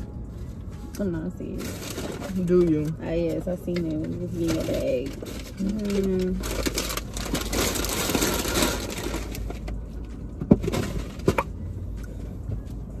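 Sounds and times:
paper bag rustling: 1.5 - 2.9, 4.0 - 9.7.

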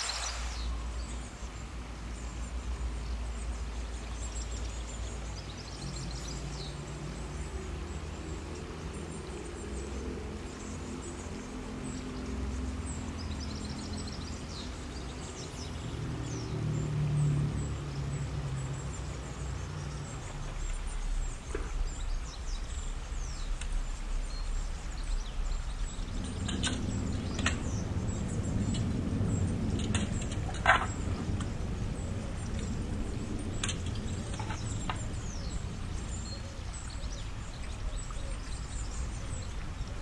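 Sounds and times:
birds chirping: 0.0 - 40.0
low rumble: 18.8 - 40.0.

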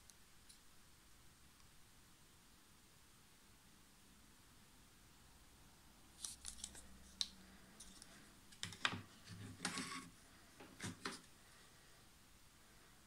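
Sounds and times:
plastic box scrape: 9.2 - 11.3.

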